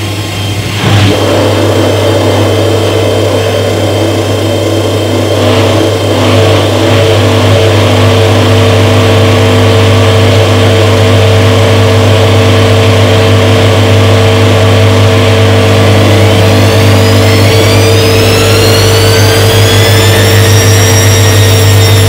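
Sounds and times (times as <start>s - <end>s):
washing machine motor hum: 0.0s - 22.0s.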